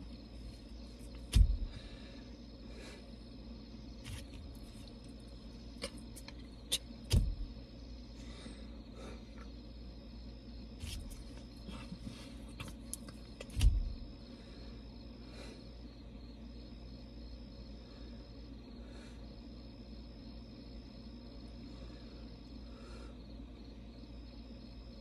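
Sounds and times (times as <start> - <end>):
crickets chirring: 0.0 - 25.0
low hum: 0.0 - 25.0
hands thumping steering wheel: 1.1 - 1.8, 6.7 - 7.5, 12.6 - 14.0.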